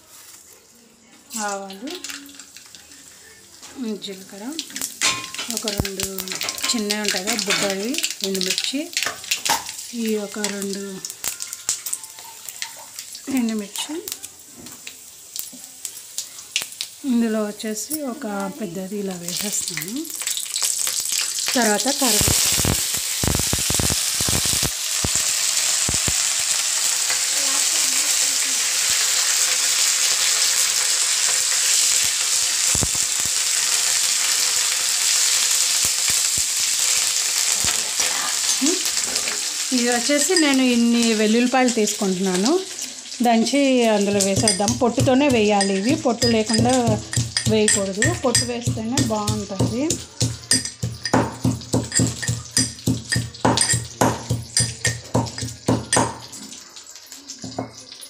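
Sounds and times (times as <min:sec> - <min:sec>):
spices sizzling in hot oil: 0:00.0 - 0:58.0
spoon stirring: 0:04.8 - 0:07.8, 0:43.8 - 0:56.3
metallic clinks of pounding garlic: 0:44.1 - 0:56.3.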